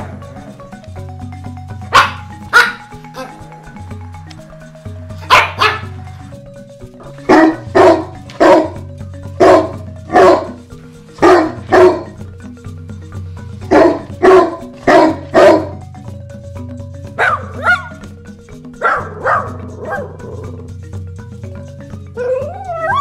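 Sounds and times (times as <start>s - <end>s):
background music: 0.0s - 23.0s
dog barking: 1.9s - 2.9s, 5.2s - 5.9s, 7.3s - 8.8s, 9.4s - 10.6s, 11.2s - 12.2s, 13.7s - 15.8s, 17.2s - 18.0s, 18.8s - 20.2s.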